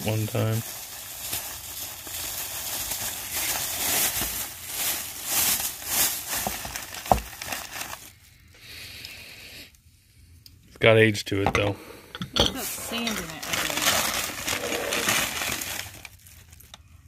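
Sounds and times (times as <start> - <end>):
plastic bag crinkling: 0.0 - 8.2, 12.6 - 17.0.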